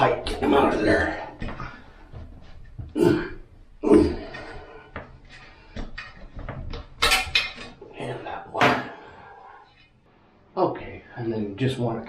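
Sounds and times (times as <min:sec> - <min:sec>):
metal bolts clunking and scraping: 0:05.3 - 0:07.8.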